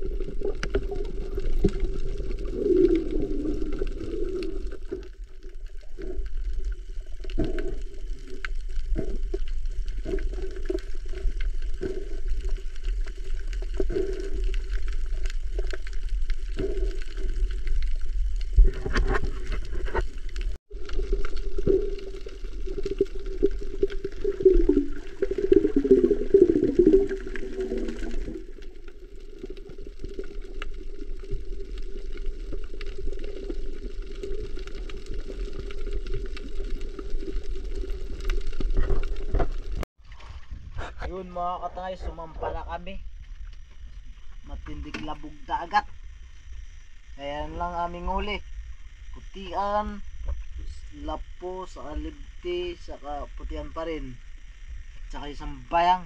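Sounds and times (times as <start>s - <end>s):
gurgling bubbles: 0.0s - 41.0s
underwater rumble: 0.0s - 56.0s.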